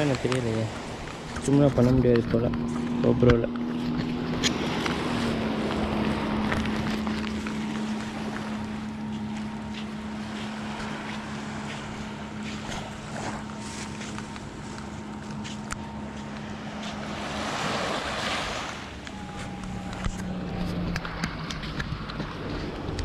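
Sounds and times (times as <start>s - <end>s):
motorboat engine droning: 0.0s - 23.0s
wind on microphone: 17.1s - 23.0s.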